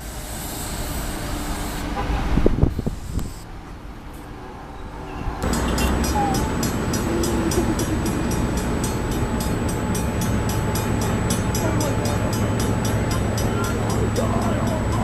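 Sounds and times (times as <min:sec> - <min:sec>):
electric train approaching: 0:00.0 - 0:15.0
traffic rumble: 0:00.0 - 0:15.0
crossing bell ringing: 0:04.8 - 0:15.0.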